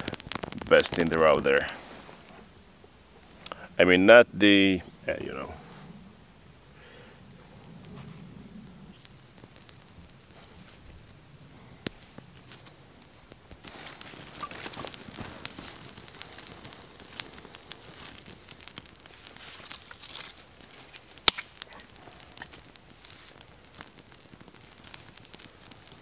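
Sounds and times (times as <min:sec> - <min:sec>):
twigs rustling: 0:00.0 - 0:02.6, 0:07.4 - 0:26.0
small fire crackling: 0:00.0 - 0:26.0
sharp twig snaps: 0:19.6 - 0:22.6.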